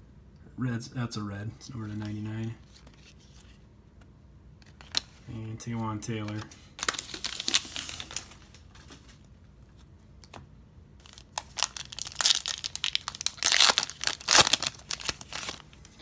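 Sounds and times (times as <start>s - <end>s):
plastic wrapper crinkling and tearing: 6.8s - 8.9s, 11.0s - 16.0s.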